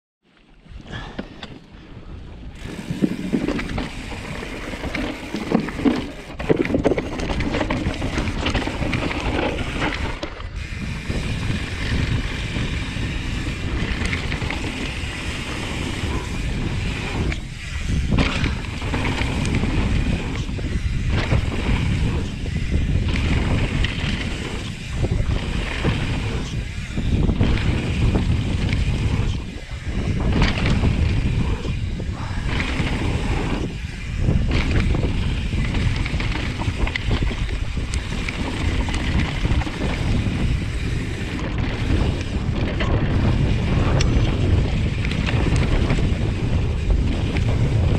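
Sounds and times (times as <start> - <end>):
wind buffeting microphone: 0.6 - 47.9
bike tyres rumbling on gravel: 2.3 - 47.9
bike chain and frame rattling: 2.6 - 47.9.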